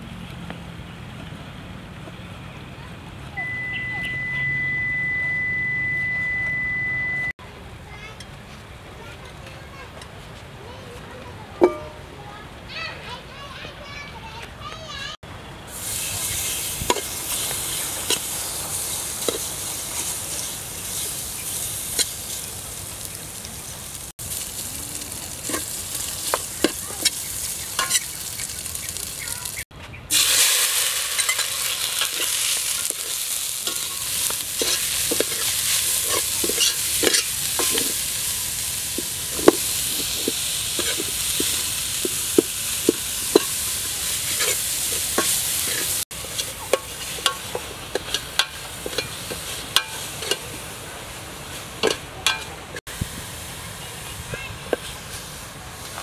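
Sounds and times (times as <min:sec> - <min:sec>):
paste sizzling in pot: 0:15.7 - 0:55.9
metal ladle scraping pot: 0:25.4 - 0:28.2, 0:30.2 - 0:38.1, 0:39.0 - 0:50.6.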